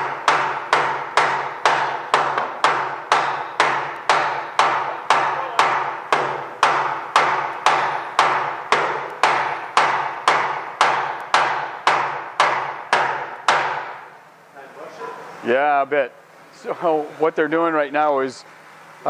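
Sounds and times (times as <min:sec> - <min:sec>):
hammer blows on metal shaft: 0:00.0 - 0:14.1.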